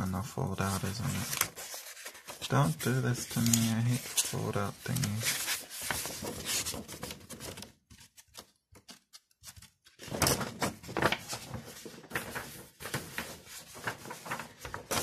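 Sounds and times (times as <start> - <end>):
paper rustling and crinkling: 0.1 - 15.0.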